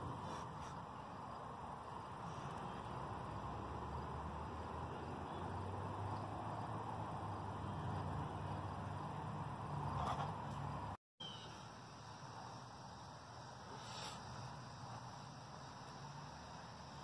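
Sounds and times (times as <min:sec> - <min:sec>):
even hiss: 0:11.2 - 0:17.0.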